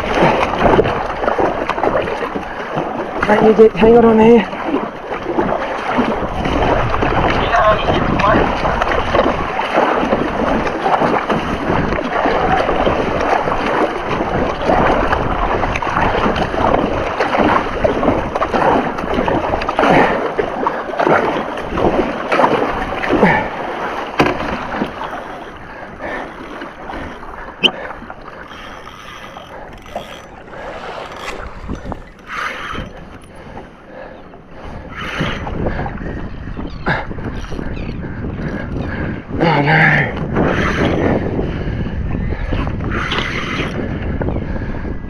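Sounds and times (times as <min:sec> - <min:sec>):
paddle strokes splashing water: 0:00.0 - 0:44.9
wind on microphone: 0:00.0 - 0:45.0.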